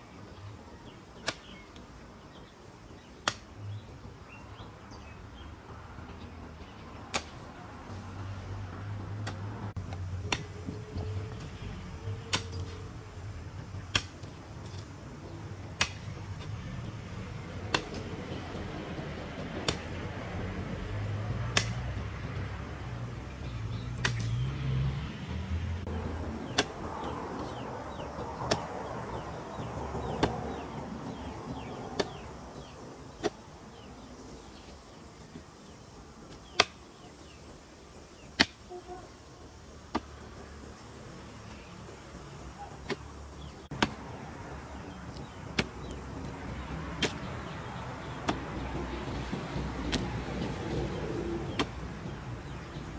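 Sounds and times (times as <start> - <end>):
hoe chopping into dry soil: 1.2 - 1.6, 2.9 - 3.6, 6.7 - 7.5, 9.1 - 10.5, 12.2 - 12.8, 13.8 - 14.9, 15.7 - 16.6, 17.6 - 18.2, 19.4 - 20.0, 21.5 - 22.0, 24.0 - 24.5, 26.5 - 34.7, 36.3 - 37.4, 38.1 - 38.7, 39.9 - 40.3, 42.8 - 44.1, 45.1 - 48.7, 51.5 - 51.8.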